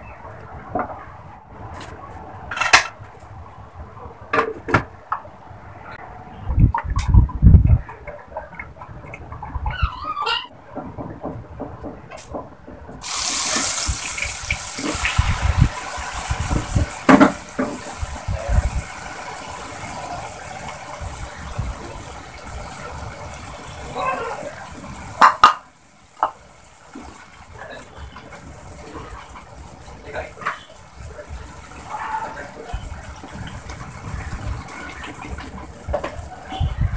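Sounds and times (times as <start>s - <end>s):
rice sizzling in hot oil: 13.0s - 33.0s.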